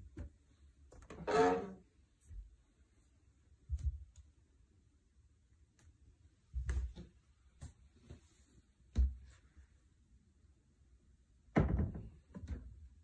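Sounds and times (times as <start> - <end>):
cabinet doors thumping and clicking: 11.5 - 12.8.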